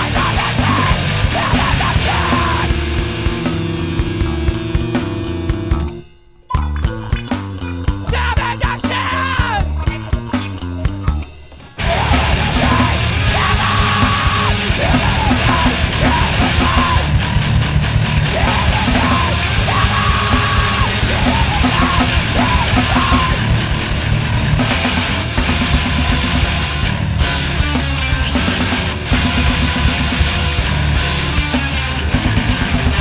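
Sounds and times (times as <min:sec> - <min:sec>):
screamed vocals: 0:00.0 - 0:03.0, 0:08.1 - 0:09.7, 0:11.8 - 0:23.7
distorted guitars: 0:00.0 - 0:33.0
heavy drums: 0:00.0 - 0:33.0.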